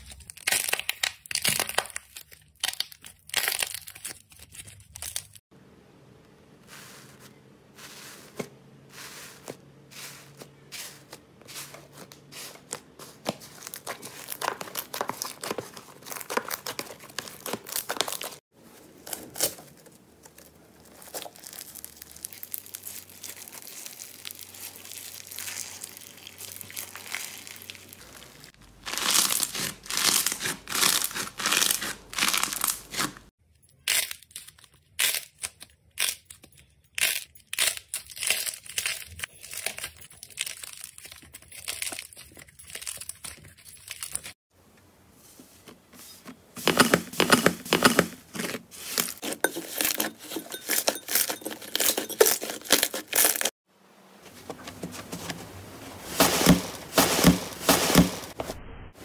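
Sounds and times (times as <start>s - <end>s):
slime crackling and squelching: 0.0s - 5.5s, 7.8s - 44.4s.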